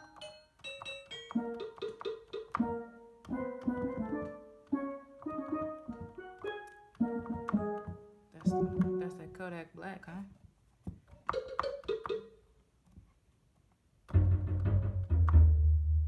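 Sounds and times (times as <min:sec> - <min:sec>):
steel drum notes: 0:02.6 - 0:09.6.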